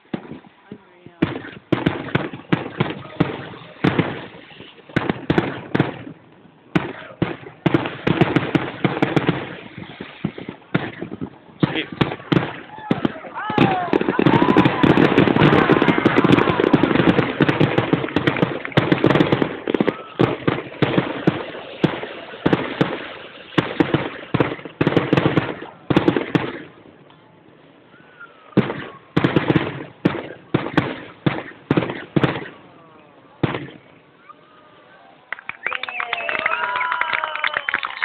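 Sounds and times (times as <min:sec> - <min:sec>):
fireworks bangs and crackles: 0:00.0 - 0:34.1.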